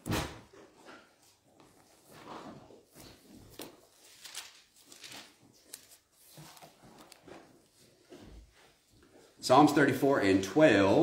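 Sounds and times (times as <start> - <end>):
faint paper pages rustling: 1.1 - 9.4.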